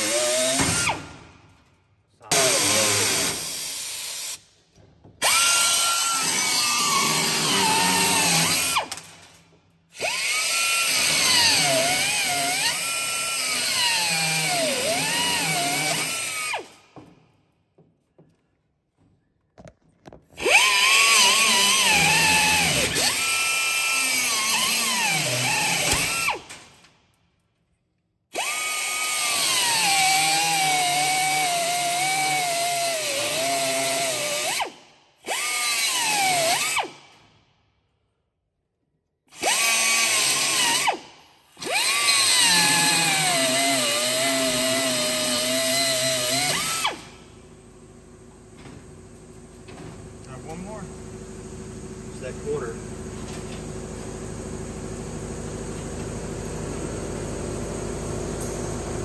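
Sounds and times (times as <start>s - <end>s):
grinder cutting metal: 2.3s - 4.4s, 5.2s - 8.9s, 10.0s - 16.5s, 20.4s - 26.4s, 41.6s - 47.0s.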